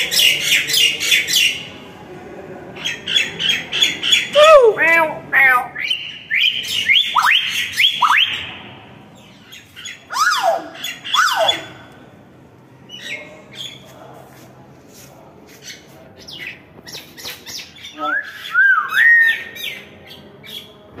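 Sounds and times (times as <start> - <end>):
bird whistles and squawks: 9.5 - 11.8, 17.2 - 19.8.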